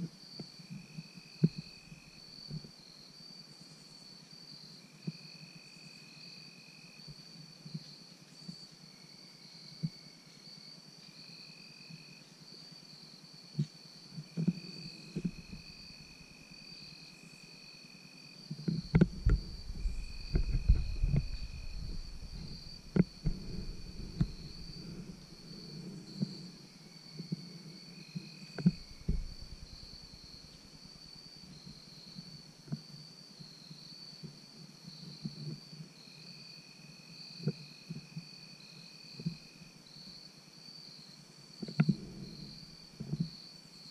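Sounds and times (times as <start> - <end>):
lower insect call: 0.0 - 43.9
rustling and clicks near microphone: 13.6 - 15.8, 18.5 - 26.5, 28.2 - 30.7
insect high trill: 14.3 - 32.5.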